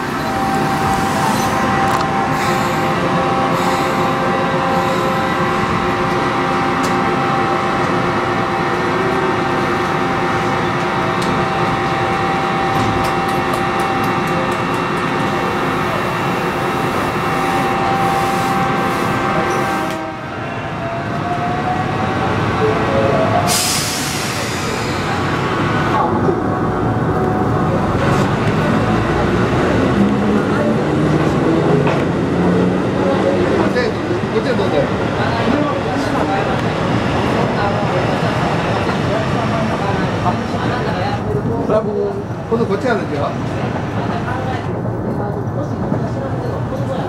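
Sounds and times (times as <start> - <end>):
train equipment humming: 0.0 - 21.4.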